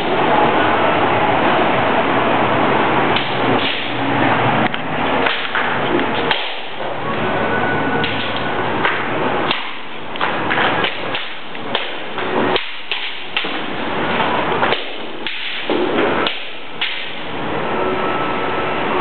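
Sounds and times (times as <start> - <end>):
bamboo swords clacking: 3.1 - 4.0, 4.6 - 7.0, 8.0 - 17.3.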